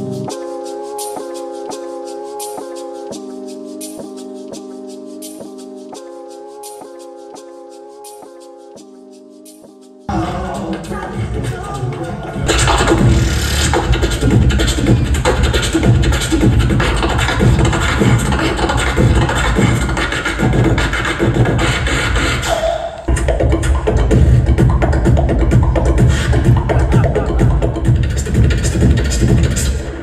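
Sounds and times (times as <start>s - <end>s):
beatboxing vocal percussion: 10.1s - 30.0s.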